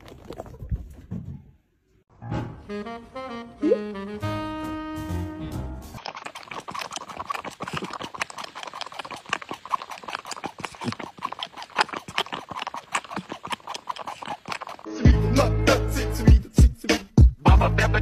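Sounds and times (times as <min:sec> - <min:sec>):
cat sucking on bottle nipple: 0:06.0 - 0:14.9.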